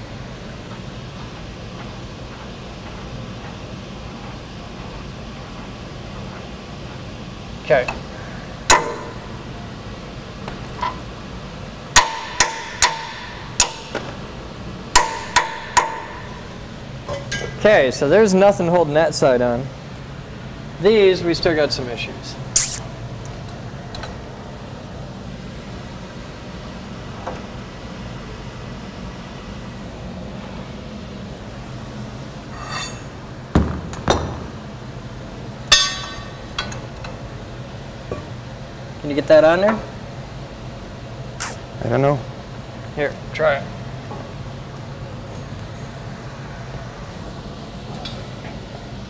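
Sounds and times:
low steady hum: 0.0 - 49.0
hammer striking steel: 8.7 - 9.5, 11.9 - 14.3, 14.9 - 17.6, 35.7 - 36.4.

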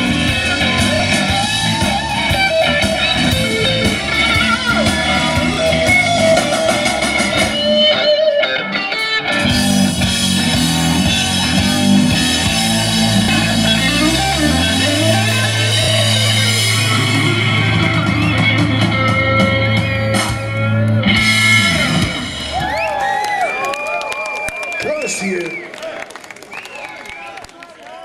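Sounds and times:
electric guitar lead: 0.0 - 23.1
bass guitar: 0.0 - 23.5
drums: 0.0 - 25.6
rock band playing: 0.0 - 25.6.

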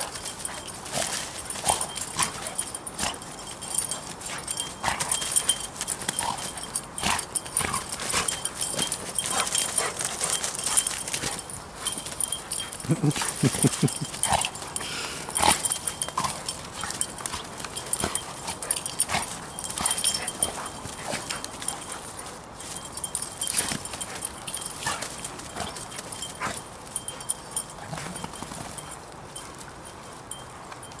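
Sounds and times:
dogs scuffling in dry leaves: 0.0 - 31.0
dog vocalisations: 12.8 - 14.3.

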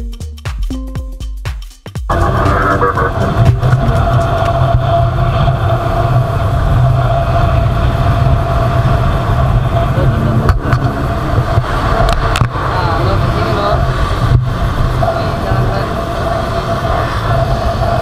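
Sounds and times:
motorcycle engine running: 2.1 - 18.0
wind rumble on microphone: 2.1 - 18.0.

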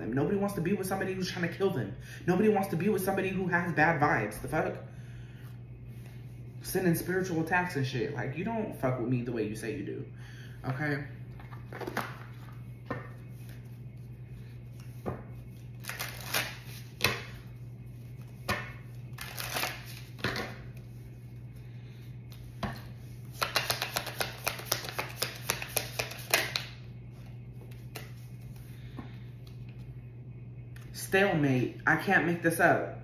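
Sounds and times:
low steady hum: 0.0 - 33.0
cards being shuffled: 14.7 - 17.4, 18.2 - 20.8, 22.3 - 28.6.

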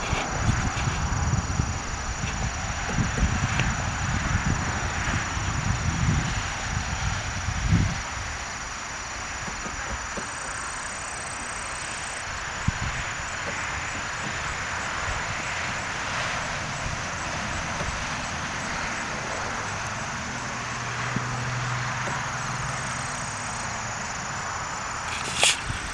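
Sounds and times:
high-pitched insect trill: 0.0 - 25.9
vehicle low hum: 0.0 - 25.9
broad hiss: 22.0 - 25.9.

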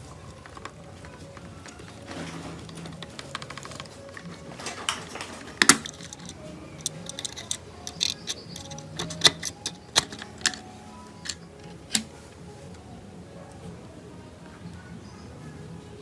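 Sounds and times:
tools tapping plastic: 0.4 - 12.1.

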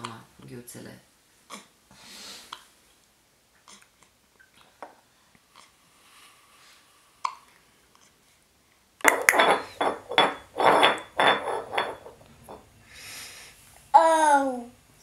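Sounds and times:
rapid clinking clattering knocks: 9.0 - 12.7.

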